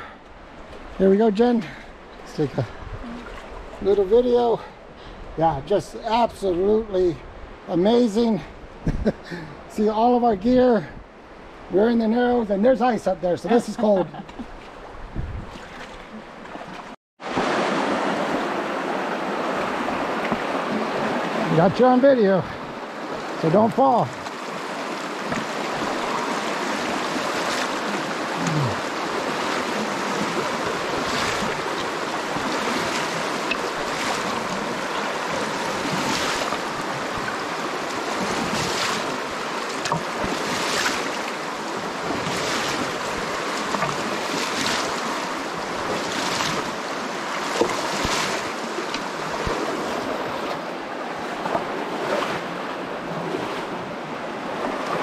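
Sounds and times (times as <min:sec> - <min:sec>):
water rushing over rocks: 0:15.6 - 0:55.0
splashing steps through water: 0:24.0 - 0:50.6.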